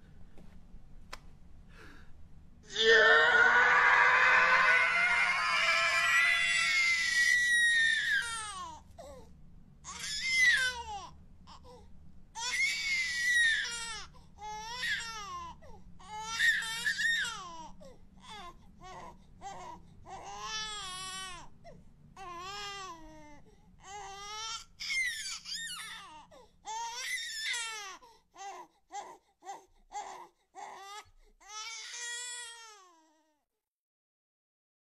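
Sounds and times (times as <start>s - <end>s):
baby crying: 2.7s - 8.7s.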